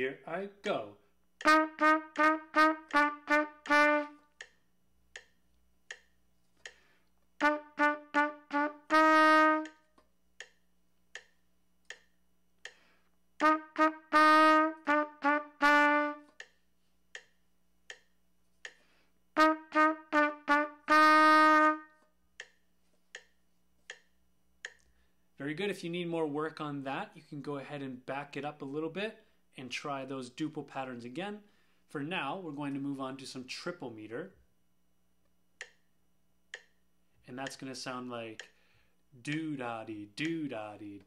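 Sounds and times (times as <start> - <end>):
trumpet playing short phrases: 0.0 - 4.3, 7.4 - 9.9, 13.4 - 16.3, 19.4 - 22.0
faint ticks: 4.4 - 7.3, 9.6 - 13.2, 16.2 - 18.9, 22.4 - 25.0.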